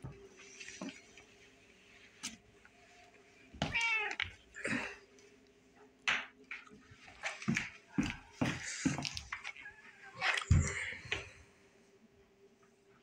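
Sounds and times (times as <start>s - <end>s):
cat meowing: 3.6s - 4.3s.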